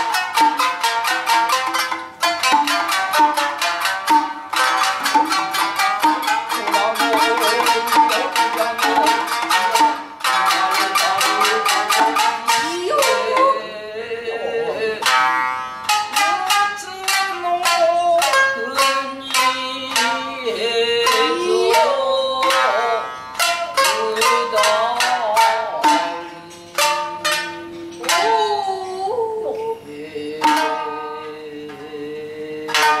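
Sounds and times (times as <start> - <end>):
shamisen plucked: 0.0 - 32.0, 32.6 - 33.0
woman singing: 10.3 - 15.2, 16.1 - 23.1, 23.8 - 33.0.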